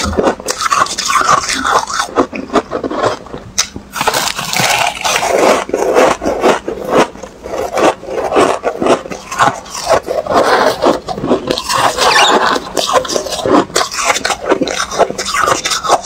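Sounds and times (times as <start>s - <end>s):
chewing crunchy frost: 0.0s - 16.0s
spoon scraping frost in bowl: 4.0s - 16.0s.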